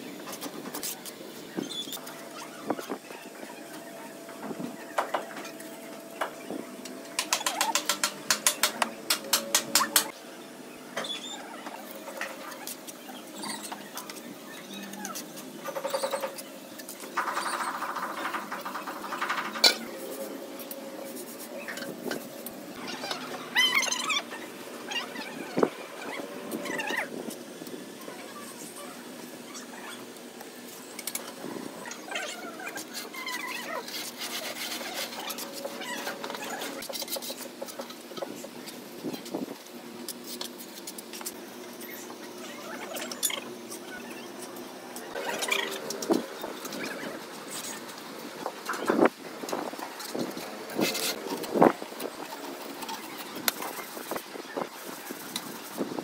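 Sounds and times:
trowel tapping and scraping mortar: 7.2s - 10.1s.

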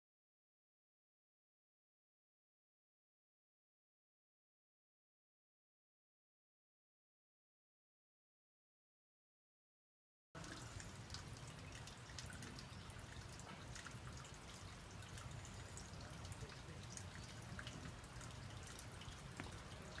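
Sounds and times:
light ticks: 13.3s - 20.0s.

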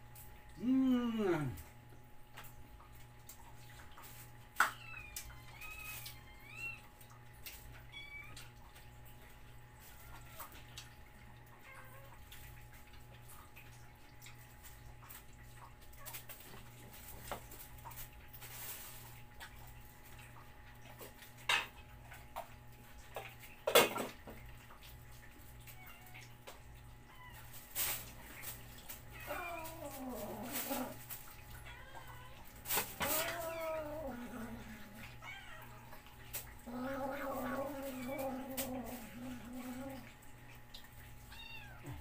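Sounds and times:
low steady hum: 0.0s - 42.0s
cats meowing: 4.6s - 7.0s, 28.9s - 40.2s, 41.2s - 42.0s.

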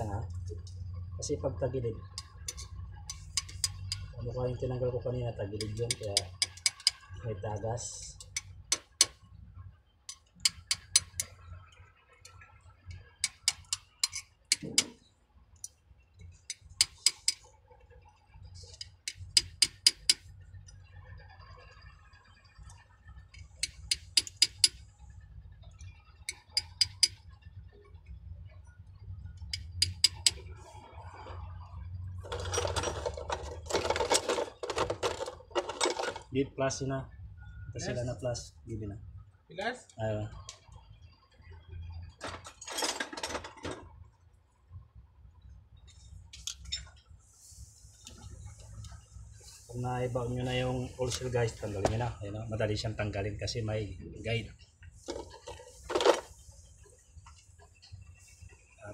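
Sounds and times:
light metal-on-metal taps: 2.1s - 4.1s.

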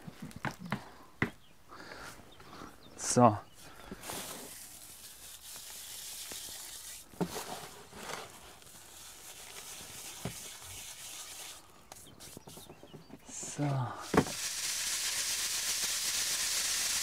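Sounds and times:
seed pods rustling between hands: 3.6s - 12.6s.

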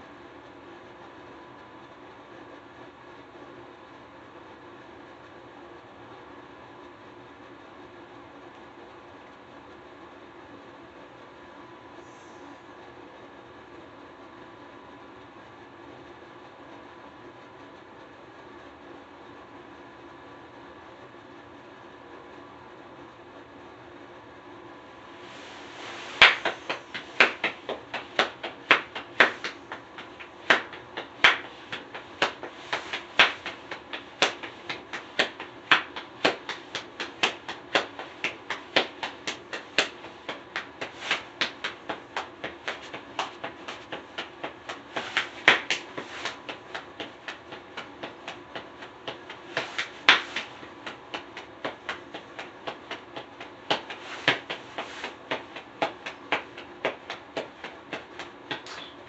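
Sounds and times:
hands slapping percussion beat: 25.4s - 59.0s.

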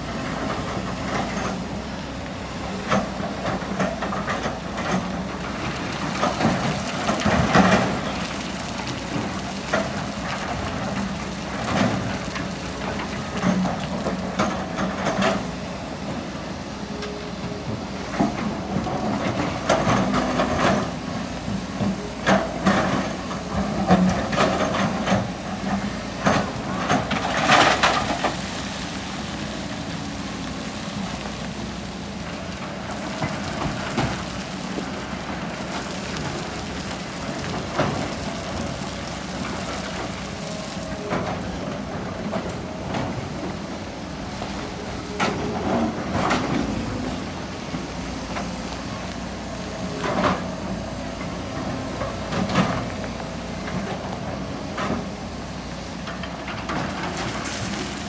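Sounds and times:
excavator diesel engine running: 0.0s - 58.0s
rock and sand clattering: 44.1s - 58.0s.

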